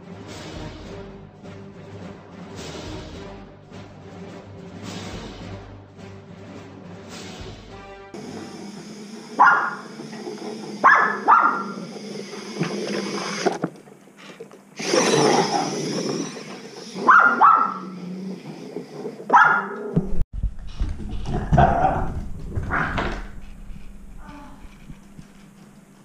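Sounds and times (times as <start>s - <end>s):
small dogs barking: 9.3s - 10.1s, 10.8s - 12.0s, 16.8s - 18.2s, 19.3s - 20.0s.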